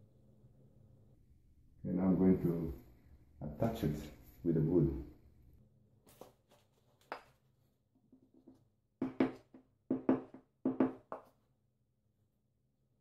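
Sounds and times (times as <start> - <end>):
wooden block knocking on tile: 8.0 - 11.4.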